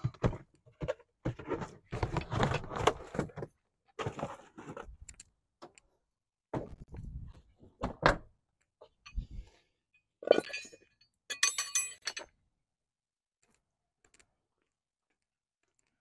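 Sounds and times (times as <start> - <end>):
metallic clinking: 10.3 - 12.4
metal tools knocking: 10.4 - 12.4.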